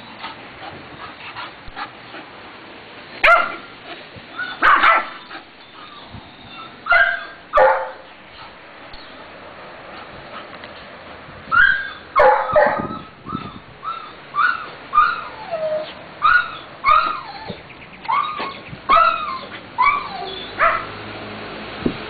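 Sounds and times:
dog barking and yipping: 0:03.2 - 0:03.7, 0:04.4 - 0:08.5, 0:11.5 - 0:21.0.

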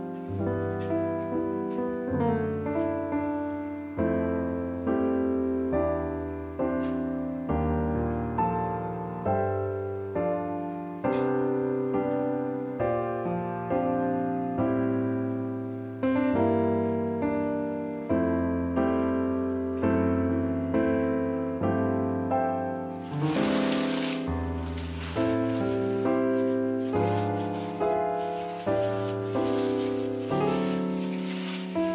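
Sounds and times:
gentle piano melody: 0:00.0 - 0:31.9
rustling noise: 0:22.9 - 0:31.9.

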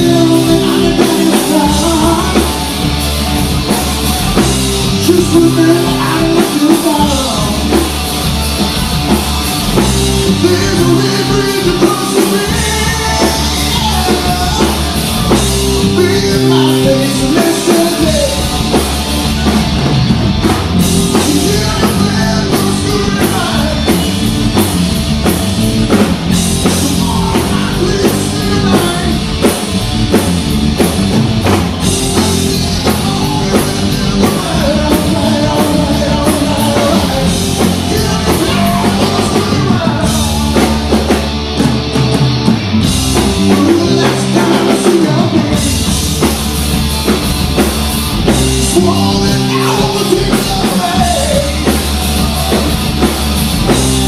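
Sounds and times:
person singing: 0:00.0 - 0:02.8, 0:04.9 - 0:07.8, 0:10.2 - 0:19.6, 0:20.9 - 0:24.2, 0:26.5 - 0:29.6, 0:31.8 - 0:41.3, 0:43.2 - 0:46.4, 0:48.5 - 0:53.1
bass guitar: 0:00.0 - 0:54.0
distorted electric guitars: 0:00.0 - 0:54.0
drum kit: 0:00.0 - 0:54.0.

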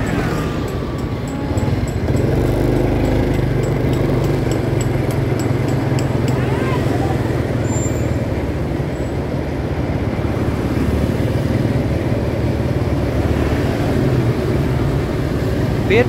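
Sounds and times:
vehicle engine running: 0:00.0 - 0:16.0.

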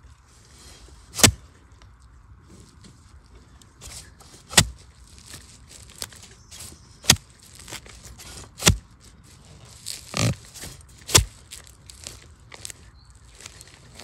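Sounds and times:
earth crunching and scraping: 0:00.0 - 0:14.0
metal blade chopping into soil: 0:01.1 - 0:01.4, 0:03.8 - 0:09.0, 0:09.7 - 0:12.8.

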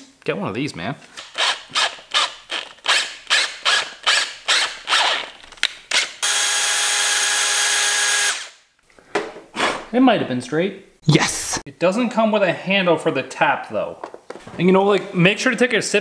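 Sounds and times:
cordless drill drilling metal: 0:06.0 - 0:08.5.

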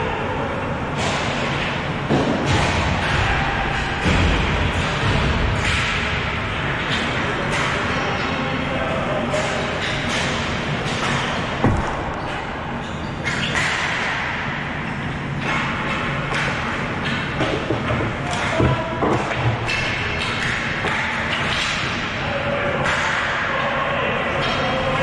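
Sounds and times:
steady background noise: 0:00.0 - 0:25.0
hockey sticks and ball knocking: 0:09.4 - 0:14.5, 0:15.4 - 0:22.0.

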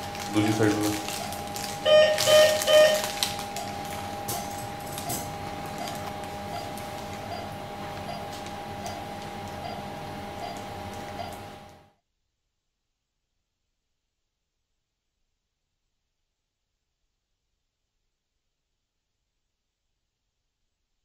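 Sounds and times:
steady high electronic tone: 0:00.4 - 0:11.4
short electronic beeps: 0:01.8 - 0:03.0.

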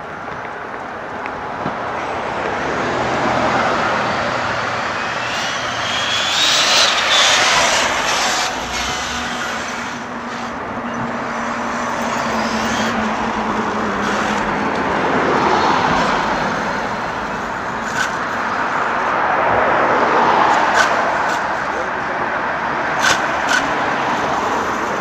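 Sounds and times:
cars passing: 0:00.0 - 0:25.0
low hum: 0:03.3 - 0:15.0.

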